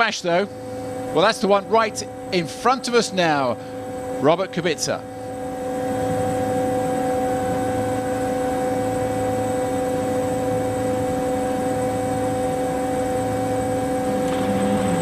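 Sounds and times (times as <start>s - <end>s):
rally car engine droning: 13.6s - 15.0s.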